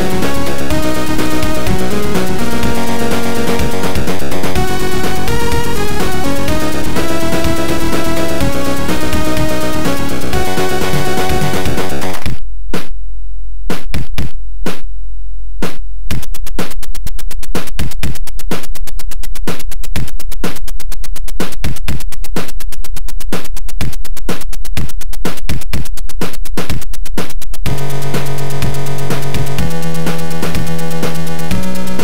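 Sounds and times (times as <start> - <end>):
sharp electronic hits: 0.0 - 12.9.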